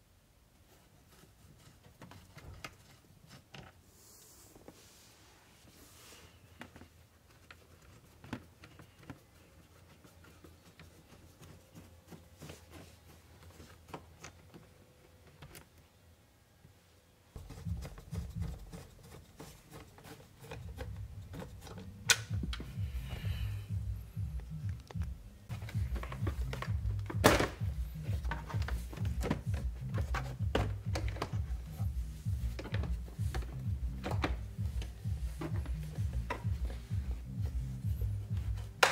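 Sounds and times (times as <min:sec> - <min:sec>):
background music with bass pulse: 0:17.4 - 0:18.7, 0:20.7 - 0:38.9.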